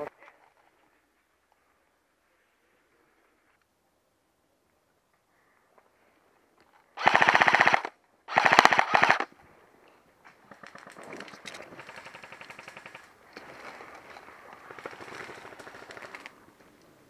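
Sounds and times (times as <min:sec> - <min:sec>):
airsoft guns firing full auto: 0:07.0 - 0:09.3, 0:11.7 - 0:13.1.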